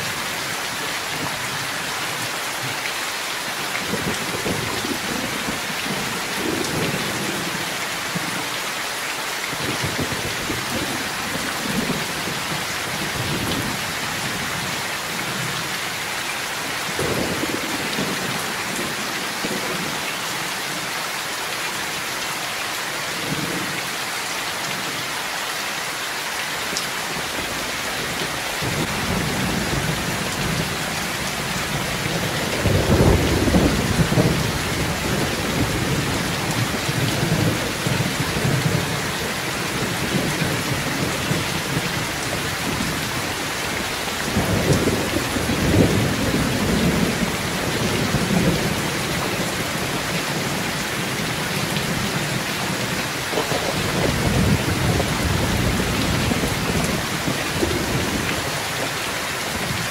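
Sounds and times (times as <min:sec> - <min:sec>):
heavy rain pouring: 0:00.0 - 0:59.9
thunder rumbling: 0:28.0 - 0:58.4.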